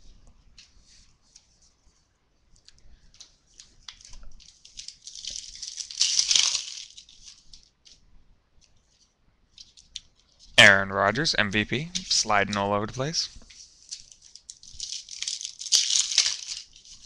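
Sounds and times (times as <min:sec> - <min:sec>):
cards rustling and clicking: 0:03.2 - 0:08.0, 0:12.0 - 0:17.0
foil wrapper crinkling and tearing: 0:03.8 - 0:07.6, 0:13.7 - 0:17.0.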